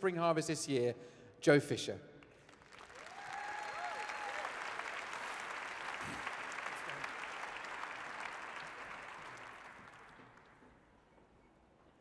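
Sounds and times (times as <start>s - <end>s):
audience applauding: 2.5s - 10.7s.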